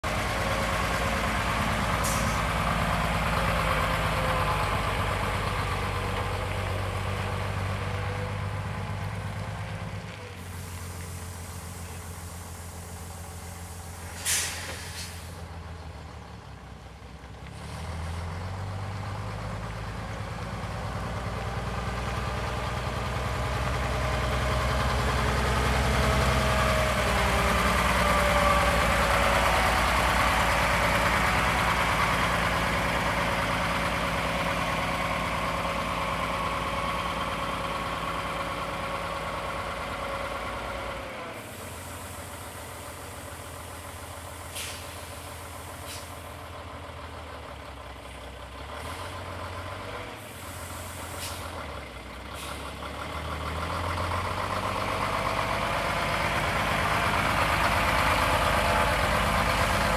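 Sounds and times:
truck diesel engine: 0.0 - 59.9
air brakes hissing: 1.9 - 2.6, 10.4 - 15.5, 41.3 - 46.4, 50.2 - 52.8.

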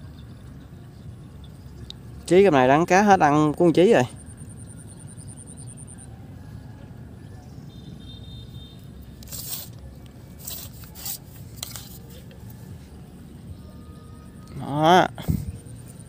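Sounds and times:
brief scraping noises: 9.2 - 12.4.

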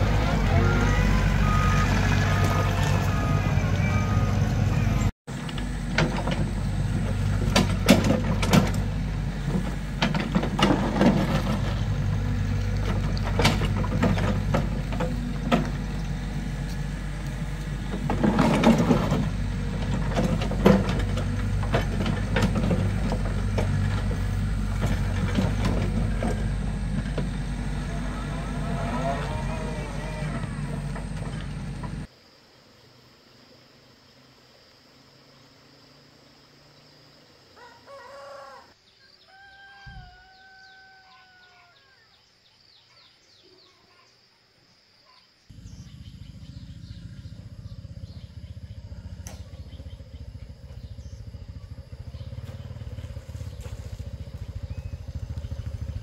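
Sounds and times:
excavator diesel engine running: 0.0 - 32.1, 45.5 - 56.0.

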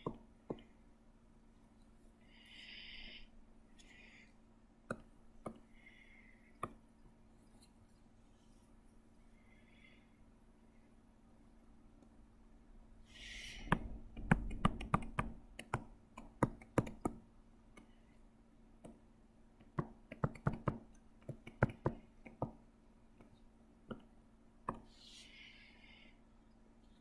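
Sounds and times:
computer mouse clicks and taps: 13.7 - 17.9, 19.6 - 22.6.

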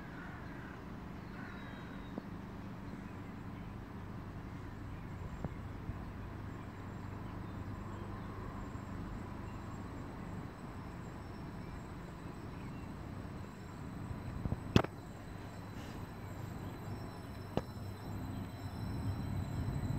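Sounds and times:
electric train humming: 6.1 - 19.9.

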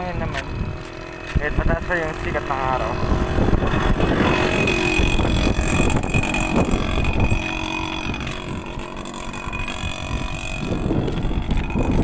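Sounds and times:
wind buffeting microphone: 0.0 - 12.0
steady high-pitched tone: 1.8 - 12.0.

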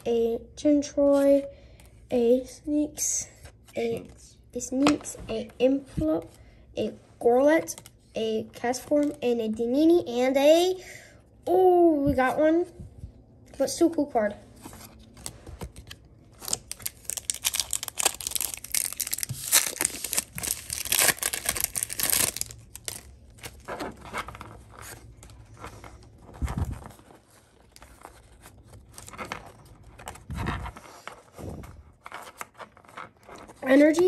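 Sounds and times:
cards rustling and clicking: 14.6 - 34.0
foil wrapper crinkling and tearing: 15.2 - 25.2.

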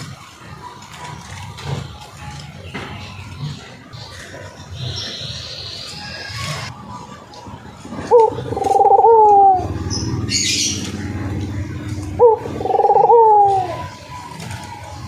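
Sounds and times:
dove cooing: 7.9 - 15.0.

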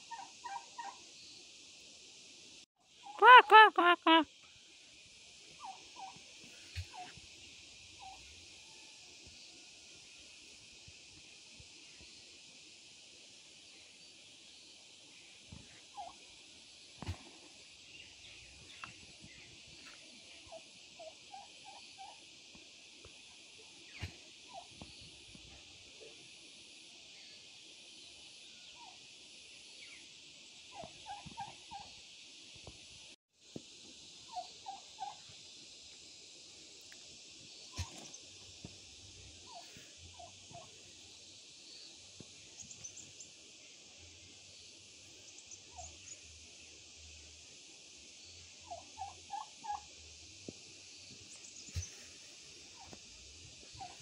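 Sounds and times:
steady high hiss: 0.0 - 54.0
turkey calling: 0.1 - 1.0, 3.0 - 4.2, 5.6 - 7.1, 34.3 - 35.3, 37.7 - 38.2, 39.4 - 40.7, 48.6 - 49.9, 52.8 - 53.0, 53.7 - 54.0.

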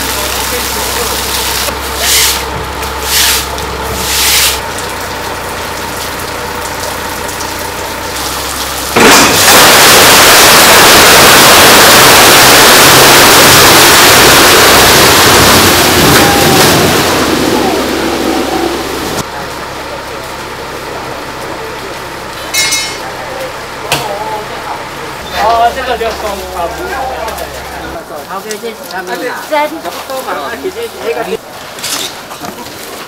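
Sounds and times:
low engine hum: 0.0 - 28.2
broom swishing on wet concrete: 2.0 - 4.6.

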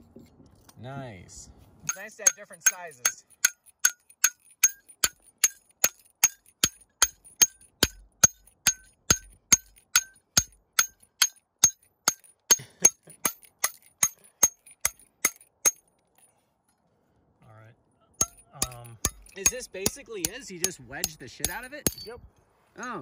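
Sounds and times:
hammer striking steel wedge: 1.9 - 15.8, 18.2 - 22.1.

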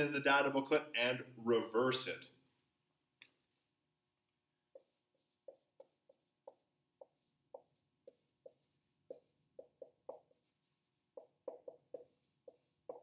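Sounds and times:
marker squeaking on whiteboard: 4.6 - 13.0.

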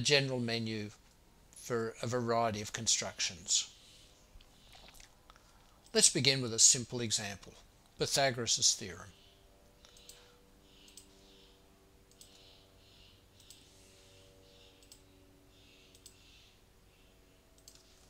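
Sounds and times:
low steady hum: 0.0 - 18.0
computer mouse clicks: 9.8 - 10.2, 10.8 - 11.1, 12.1 - 12.5, 13.4 - 13.7, 14.7 - 15.1, 15.9 - 16.3, 17.6 - 18.0.

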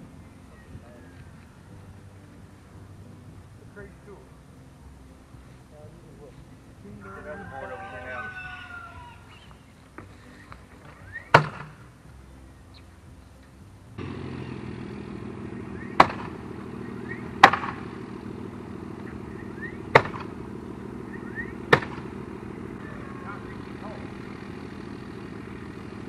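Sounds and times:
nails hammered into wood: 11.3 - 11.8, 16.0 - 16.4, 17.4 - 17.9, 19.9 - 20.3, 21.7 - 22.0
steady motor hum: 14.0 - 26.0.

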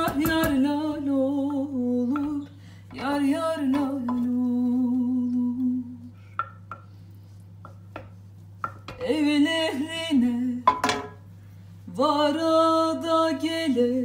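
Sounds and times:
woman singing unaccompanied: 0.0 - 6.1, 9.0 - 10.8, 11.9 - 14.0
wooden spoon tapping steel pan: 3.7 - 5.7, 6.3 - 6.9.

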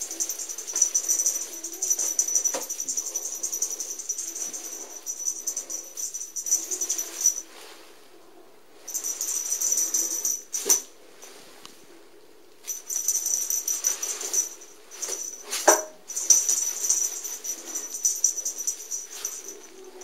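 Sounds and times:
feather cat toy rustling: 0.0 - 7.9, 12.7 - 20.0.

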